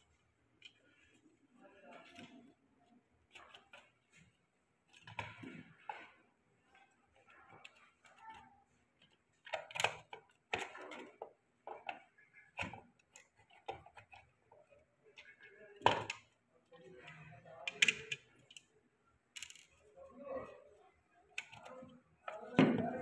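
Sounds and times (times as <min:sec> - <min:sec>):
plastic housing clicks and knocks: 0:09.0 - 0:16.3, 0:22.3 - 0:23.0.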